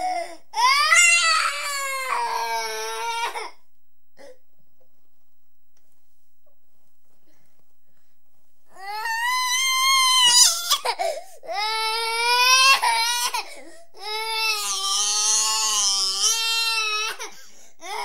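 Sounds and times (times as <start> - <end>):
toddler crying and sobbing: 0.0 - 3.5, 8.8 - 18.0.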